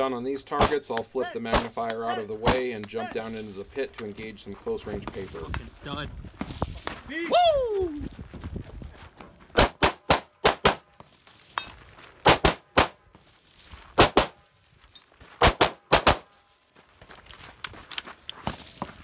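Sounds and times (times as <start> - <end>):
rifle shots: 9.6 - 10.9, 12.2 - 13.0, 14.0 - 14.4, 15.4 - 16.3.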